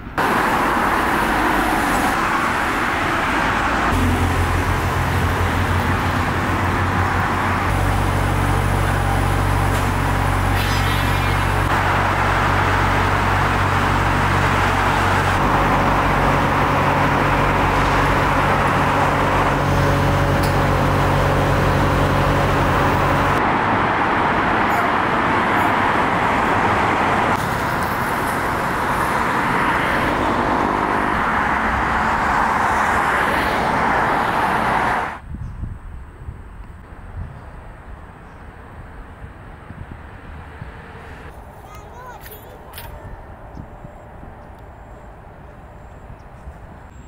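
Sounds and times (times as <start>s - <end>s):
low engine hum: 0.0s - 42.2s
road traffic noise: 0.0s - 47.0s.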